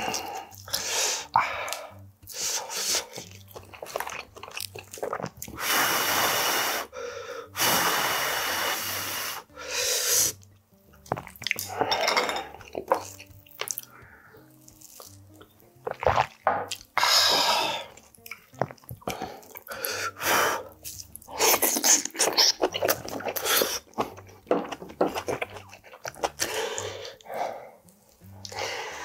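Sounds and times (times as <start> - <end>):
breathy mouth sounds: 0.0 - 29.0
man blowing breaths: 5.6 - 10.4.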